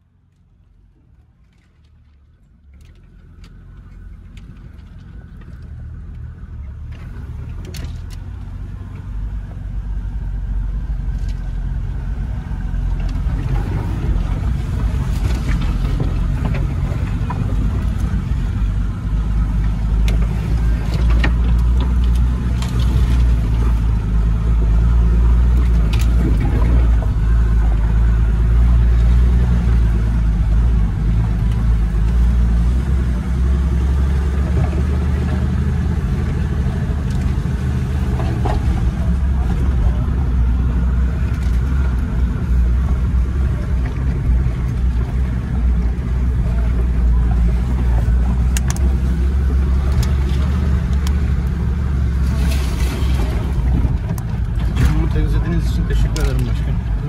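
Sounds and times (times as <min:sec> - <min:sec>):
suv engine running: 0:00.0 - 0:57.0
clicks and knocks from vehicle body: 0:19.6 - 0:23.7, 0:38.0 - 0:40.1.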